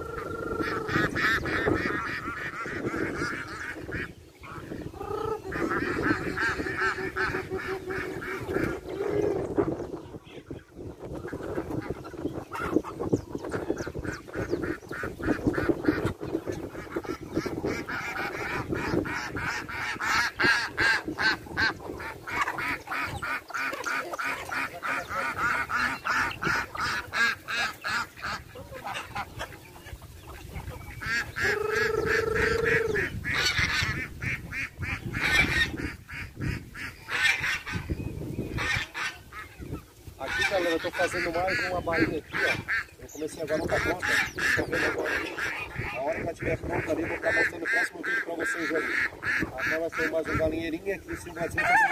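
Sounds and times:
geese honking: 0:00.0 - 0:09.8, 0:10.4 - 0:51.9
chickens calling: 0:00.0 - 0:51.9
ducks quacking: 0:00.0 - 0:51.9
long steady bird call: 0:12.0 - 0:46.0.

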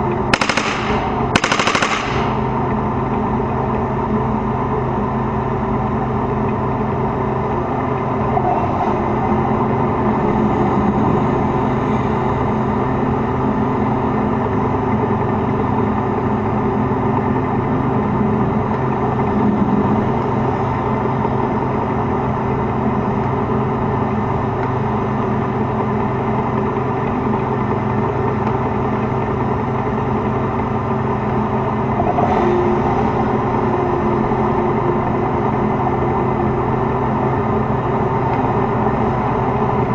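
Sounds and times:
tank diesel engine running: 0:00.0 - 0:39.9.

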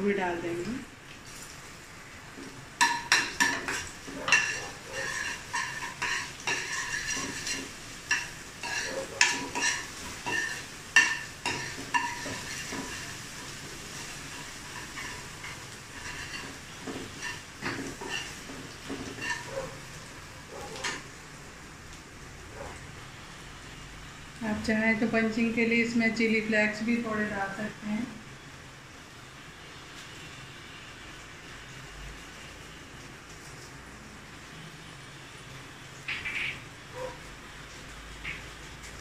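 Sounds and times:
garlic and chillies sizzling in oil: 0:00.0 - 0:39.0
spoon clinking against pan: 0:02.8 - 0:12.8.

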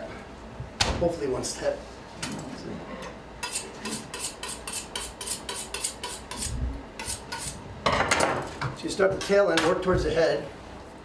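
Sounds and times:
knife scraping fish fillet: 0:03.4 - 0:07.6.

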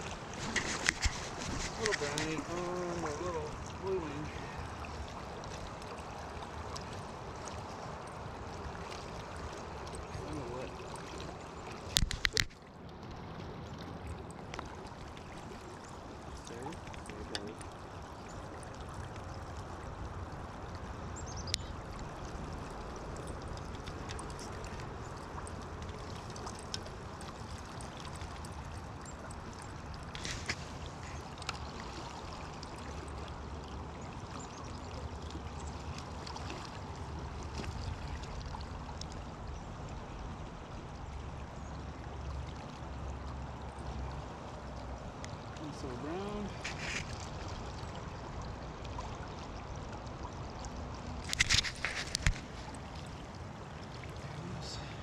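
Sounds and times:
river current rushing: 0:00.0 - 0:12.5, 0:44.0 - 0:48.4, 0:51.2 - 0:55.0.

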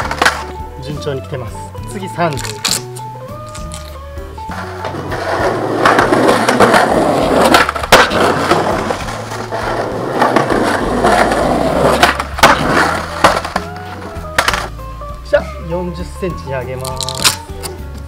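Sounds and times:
skateboard clacks: 0:00.0 - 0:00.5, 0:04.5 - 0:14.7
skateboard tail pop: 0:00.0 - 0:00.5, 0:11.9 - 0:14.7
skateboard wheels rolling on concrete: 0:00.0 - 0:00.8, 0:01.9 - 0:14.8.

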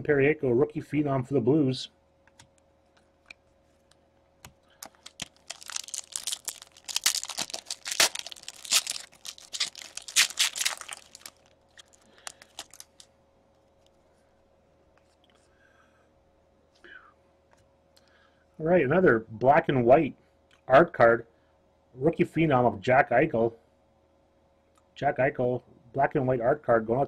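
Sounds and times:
foil wrapper tearing and crinkling: 0:04.8 - 0:13.0.

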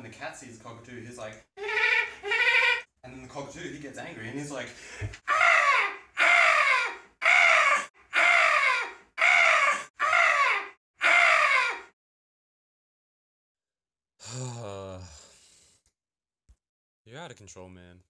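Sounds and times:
man screeching like a cockatoo: 0:01.6 - 0:02.9, 0:05.3 - 0:11.9.

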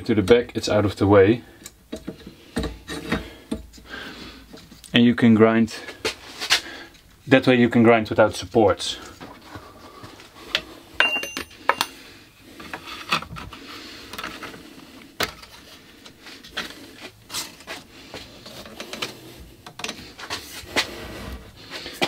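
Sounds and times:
sharp clicks and knocks: 0:01.6 - 0:03.8.

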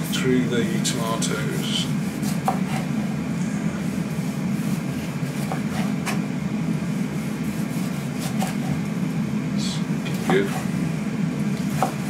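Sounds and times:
kitchen appliance humming: 0:00.0 - 0:12.0
knife slicing tomatoes: 0:01.9 - 0:03.0, 0:07.5 - 0:08.8, 0:11.6 - 0:12.0.

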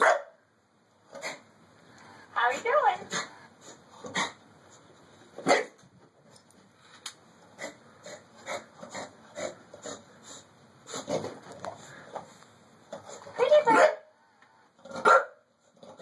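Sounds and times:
dog breathing and sniffing: 0:07.5 - 0:13.4
dog huffs: 0:07.6 - 0:12.2.

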